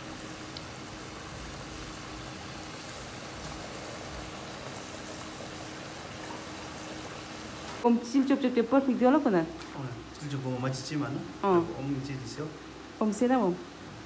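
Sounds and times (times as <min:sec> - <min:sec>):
oil sizzling in a wok: 0:00.0 - 0:07.9.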